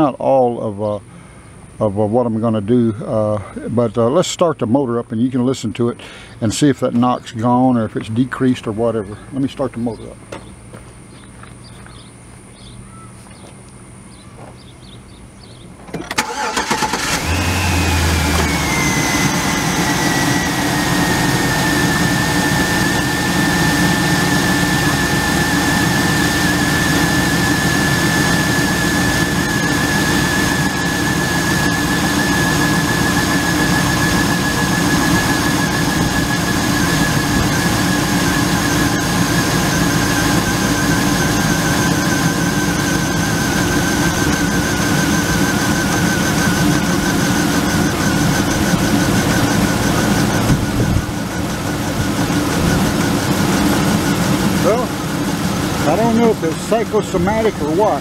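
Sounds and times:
truck engine starting and idling: 15.8 - 58.0.

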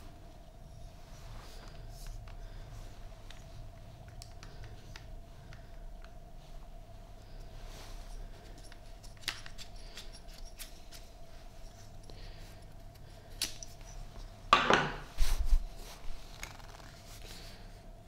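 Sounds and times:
faint steady hum: 0.0 - 18.0
small clicks and taps: 3.2 - 6.2.

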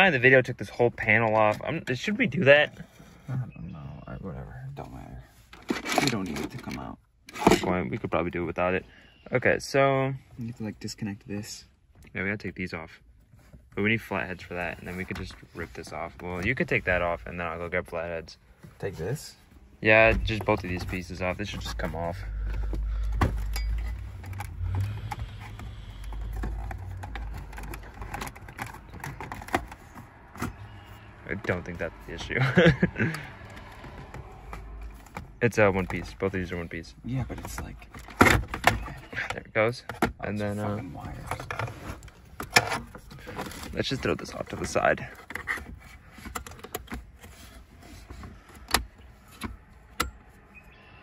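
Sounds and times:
microphone handling rumble: 19.8 - 29.3.

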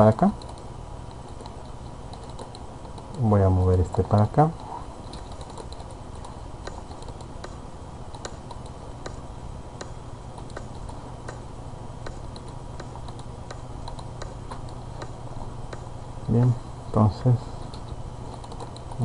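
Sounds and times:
steady low hum: 0.0 - 19.0
mouse and keyboard clicks: 0.3 - 3.2, 5.0 - 9.2, 9.8 - 11.4, 17.6 - 19.0.

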